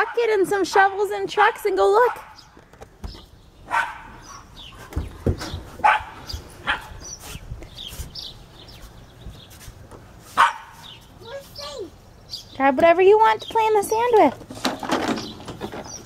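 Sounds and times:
dog barking: 2.1 - 2.4, 3.7 - 4.5, 5.8 - 7.0, 10.4 - 10.9.

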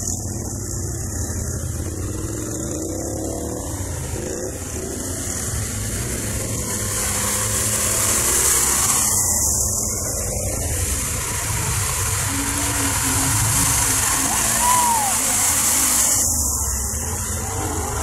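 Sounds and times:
atv engine revving: 0.0 - 18.0.

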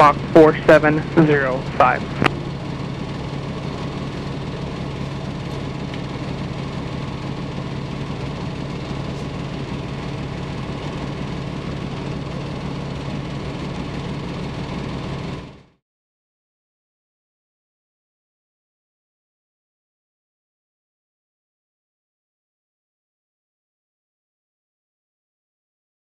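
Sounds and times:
aircraft engine idling: 0.0 - 15.8.

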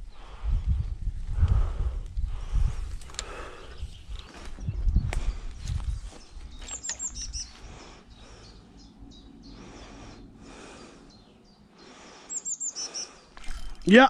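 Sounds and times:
faint outdoor background noise: 0.0 - 14.0
small birds chirping: 2.8 - 14.0.

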